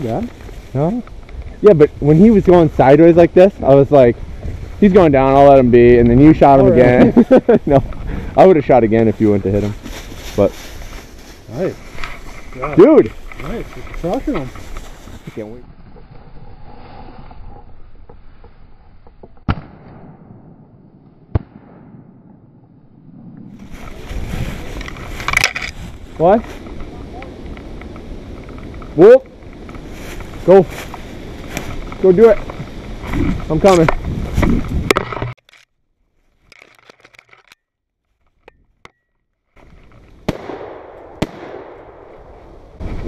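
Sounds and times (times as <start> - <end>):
shotgun shots: 19.5 - 20.7, 21.3 - 22.4, 40.3 - 42.1.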